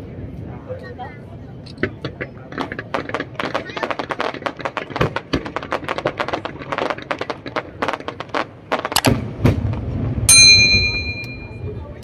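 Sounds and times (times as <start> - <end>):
fireworks crackling pops: 1.7 - 10.9
firework shells booming: 1.7 - 11.7.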